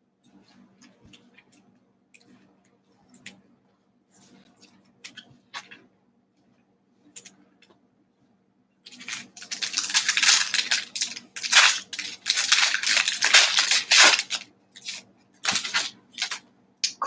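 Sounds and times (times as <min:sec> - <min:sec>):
foil wrapper tearing and crinkling: 0:08.9 - 0:16.4.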